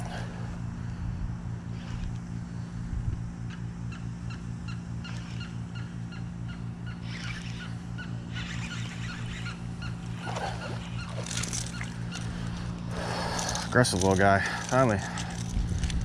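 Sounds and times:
fishing reel cranking hum: 0:00.0 - 0:02.8, 0:03.5 - 0:16.0
bird calling: 0:03.5 - 0:13.8.

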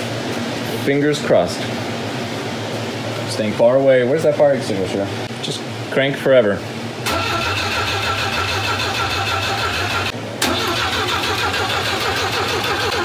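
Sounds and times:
engine cranking on starter motor: 0:07.0 - 0:13.0.

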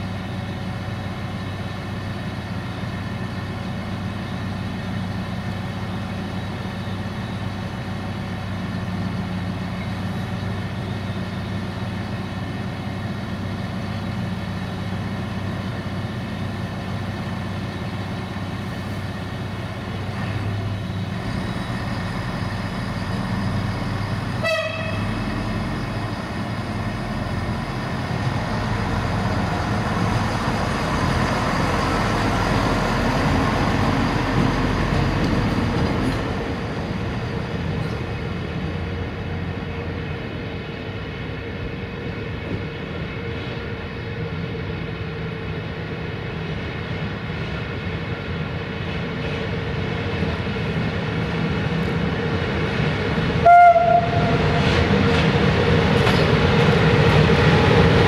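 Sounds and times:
electric locomotive humming: 0:00.0 - 0:58.0
train horn toot: 0:24.4 - 0:25.2, 0:53.4 - 0:54.6.

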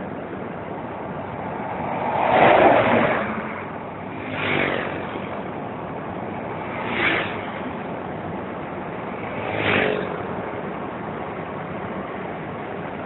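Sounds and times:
road and wind noise: 0:00.0 - 0:13.0
vehicles passing by: 0:00.0 - 0:13.0.

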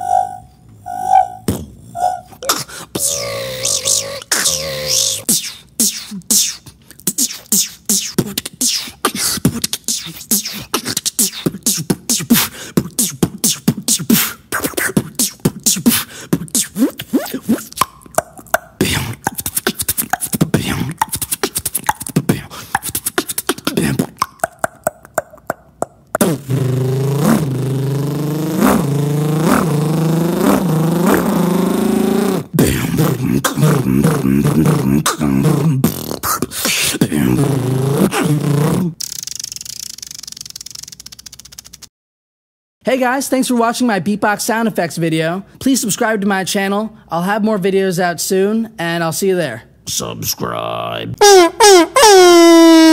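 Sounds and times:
beatboxing zaps and clicks: 0:02.3 - 0:41.9
low buzzing vocal drone: 0:03.0 - 0:05.2, 0:26.4 - 0:35.8.

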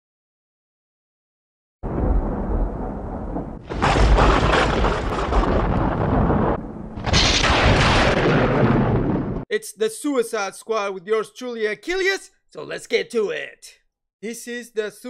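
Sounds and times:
thunder-like rumbling crash: 0:01.8 - 0:09.4.

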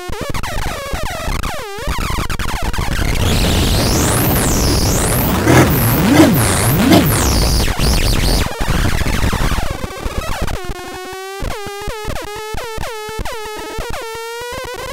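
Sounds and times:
stuttering short synth tones: 0:03.2 - 0:07.7
noise synth with pitch glides: 0:03.2 - 0:07.8.

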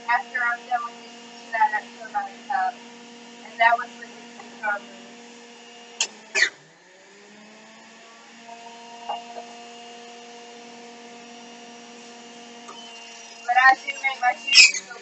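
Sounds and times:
juicer motor humming: 0:00.0 - 0:15.0.

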